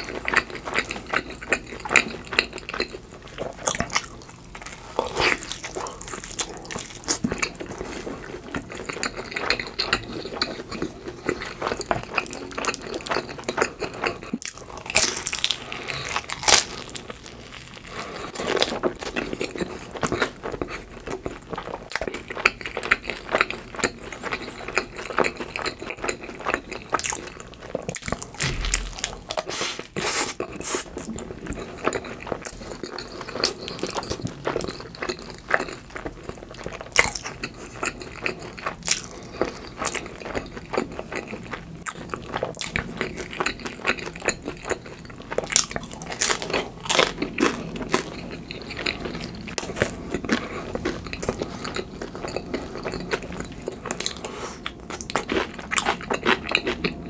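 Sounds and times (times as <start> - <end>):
chewing and crunching: 0.0 - 57.0.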